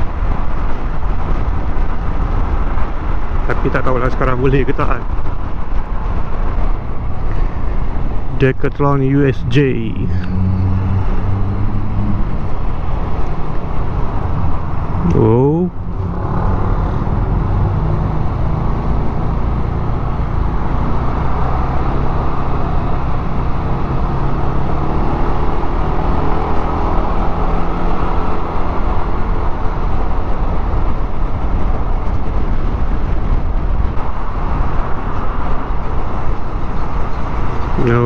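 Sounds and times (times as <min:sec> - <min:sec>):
wind rushing on microphone: 0:00.0 - 0:38.0.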